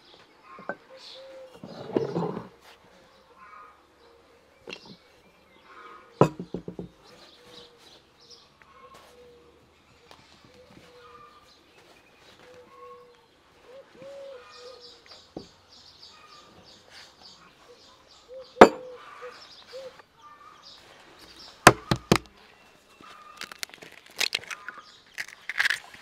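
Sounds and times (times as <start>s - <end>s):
birds calling: 0.0s - 26.0s
sharp knocks: 21.7s - 22.3s.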